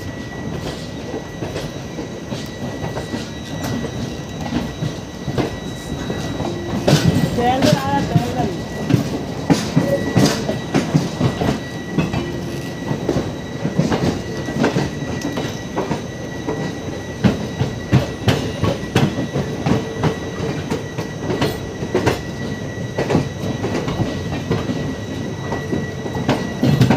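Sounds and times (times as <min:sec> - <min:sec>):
train wheels clattering over joints: 0:00.0 - 0:26.9
wheel squeal: 0:00.0 - 0:26.9.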